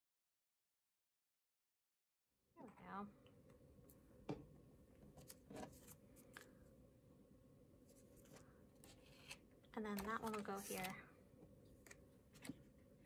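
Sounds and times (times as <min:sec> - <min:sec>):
paper envelope tapping and rustling: 0:09.2 - 0:11.0.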